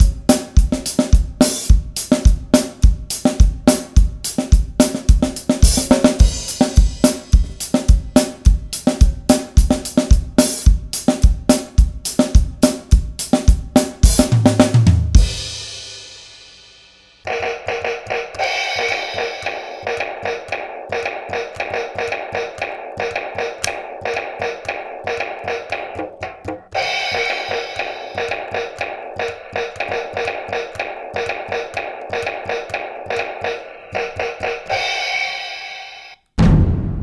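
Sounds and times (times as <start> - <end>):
backing music track: 0.0 - 36.5
electronic finger drum hits: 17.2 - 35.5.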